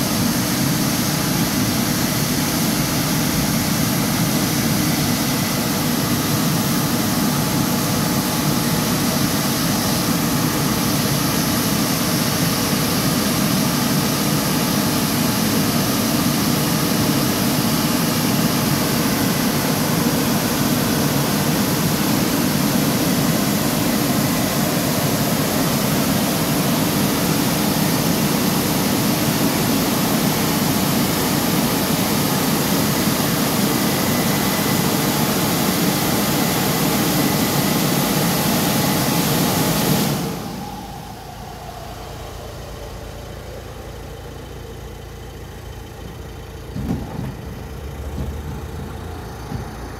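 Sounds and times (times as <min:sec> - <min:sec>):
car wash rushing noise: 0:00.0 - 0:49.9
low hum: 0:40.2 - 0:49.9.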